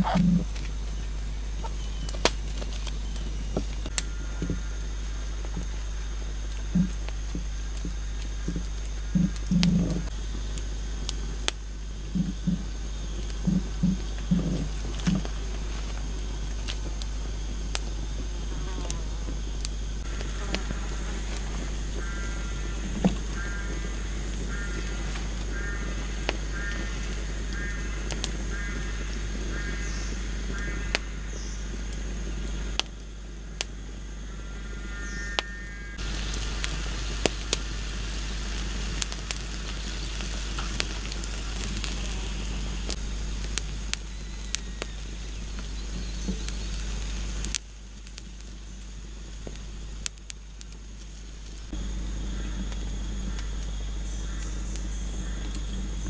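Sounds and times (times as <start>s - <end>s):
sharp pops of burning branches: 0.0s - 56.0s
wood fire crackling: 0.0s - 56.0s.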